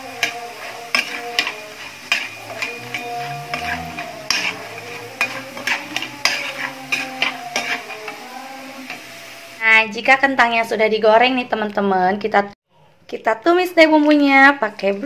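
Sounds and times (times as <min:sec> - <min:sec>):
metal spatula scraping wok: 0:00.0 - 0:09.5
potatoes frying in oil: 0:00.0 - 0:12.2.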